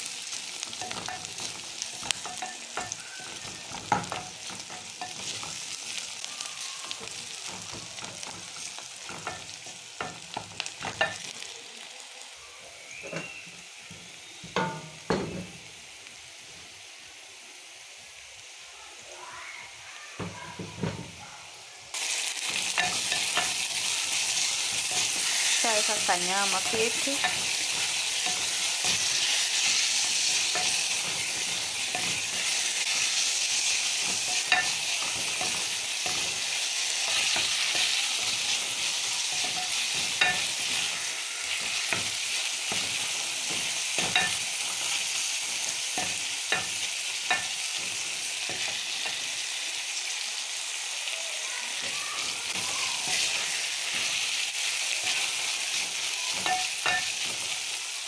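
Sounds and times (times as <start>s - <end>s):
meat and onions sizzling in oil: 0.0s - 58.0s
spatula stirring in pot: 22.6s - 49.2s.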